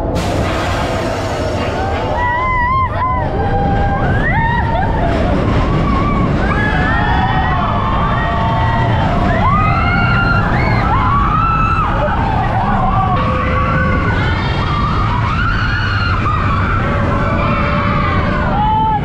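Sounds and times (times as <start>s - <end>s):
roller coaster rumbling on track: 0.0s - 19.0s
riders screaming and whooping: 1.5s - 19.0s.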